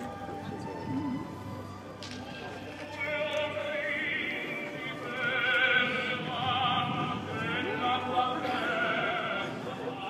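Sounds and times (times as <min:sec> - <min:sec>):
operatic singing with music: 0:02.2 - 0:10.0.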